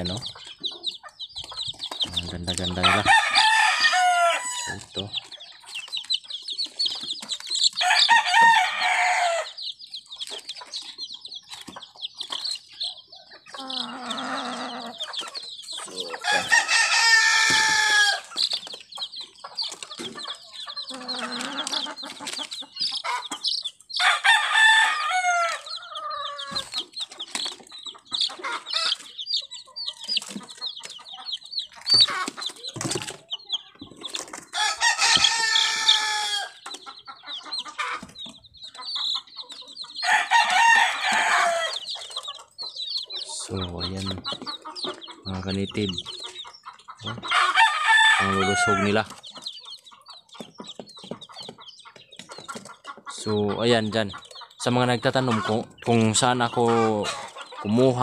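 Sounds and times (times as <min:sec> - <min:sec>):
chicks peeping: 0:00.0 - 0:58.0
rooster crowing: 0:02.6 - 0:05.0, 0:07.8 - 0:09.6, 0:16.2 - 0:18.3, 0:24.0 - 0:26.7, 0:34.6 - 0:36.6, 0:40.0 - 0:42.0, 0:47.3 - 0:49.0.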